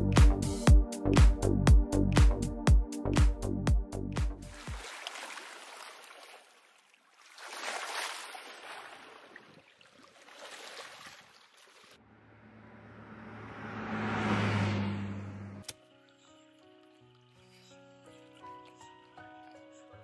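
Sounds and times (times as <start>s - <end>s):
vehicle passing on road: 12.0s - 15.7s.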